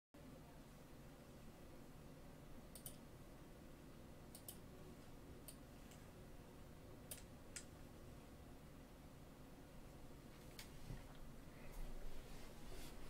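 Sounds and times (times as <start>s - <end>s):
faint irregular clicks: 2.7s - 3.1s, 4.3s - 6.1s, 7.0s - 7.8s.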